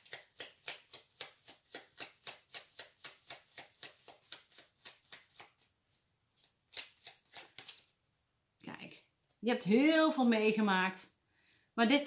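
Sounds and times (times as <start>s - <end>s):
cards being shuffled: 0.0s - 8.0s.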